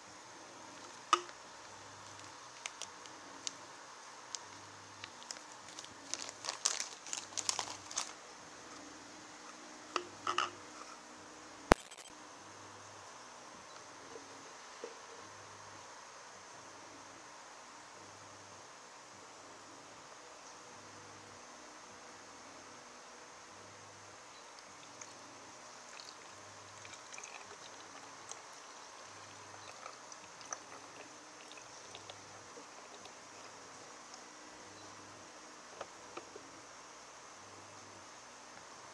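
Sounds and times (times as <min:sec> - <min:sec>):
steady hiss: 0:00.0 - 0:38.9
plastic wrappers crinkling: 0:02.0 - 0:03.6, 0:05.0 - 0:08.2
small ticks and drips: 0:24.3 - 0:34.3
liquid trickling into plastic flask: 0:25.9 - 0:33.5.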